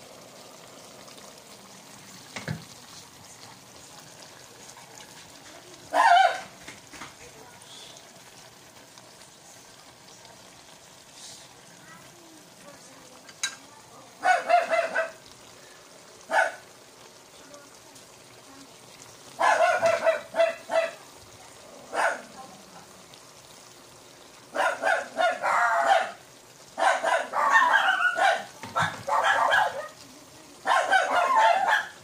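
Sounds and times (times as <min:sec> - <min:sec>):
pan sizzling: 0:00.0 - 0:32.0
dog barking: 0:05.9 - 0:06.5, 0:14.2 - 0:15.2, 0:16.3 - 0:16.6, 0:19.4 - 0:21.0, 0:21.9 - 0:22.3, 0:24.5 - 0:26.2, 0:26.8 - 0:30.0, 0:30.6 - 0:32.0.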